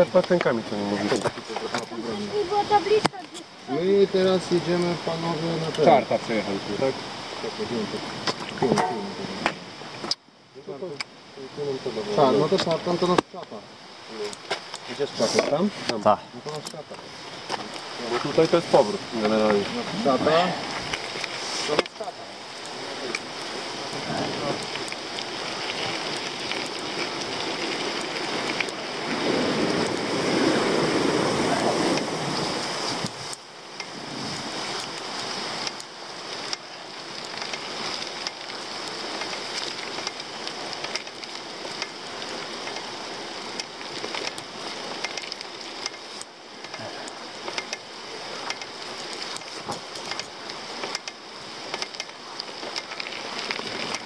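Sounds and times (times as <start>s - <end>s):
bike tyres rolling over dirt: 0.0s - 54.0s
bike rattling over bumps: 15.8s - 54.0s
wind on microphone: 22.8s - 35.8s.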